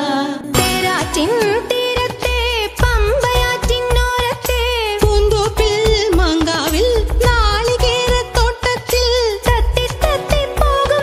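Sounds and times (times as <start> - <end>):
dance song melody: 0.6 - 4.2
steady drum beat: 0.6 - 11.0
pulsing bass: 2.3 - 8.6, 9.4 - 10.8.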